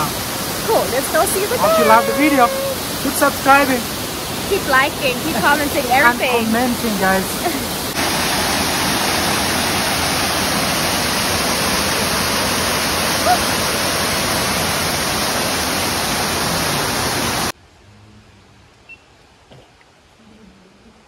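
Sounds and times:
waterfall rushing: 0:00.0 - 0:17.5
brief high note: 0:01.5 - 0:02.8.

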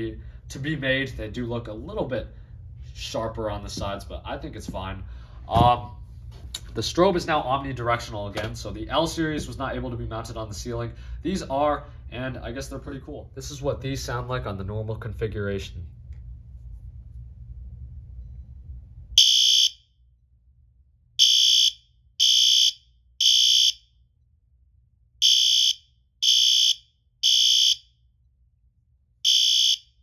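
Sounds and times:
fire alarm horn blasts: 0:19.2 - 0:20.0, 0:21.2 - 0:24.0, 0:25.2 - 0:28.1, 0:29.2 - 0:30.0.

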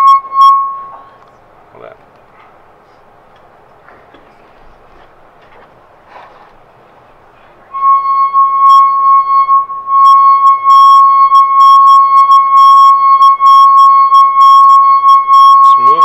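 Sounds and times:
wine glass ringing tone: 0:00.0 - 0:01.2, 0:07.8 - 0:16.0.

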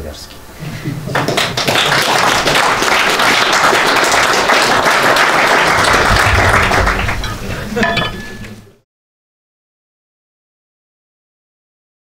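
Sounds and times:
audience applauding: 0:01.1 - 0:07.9.

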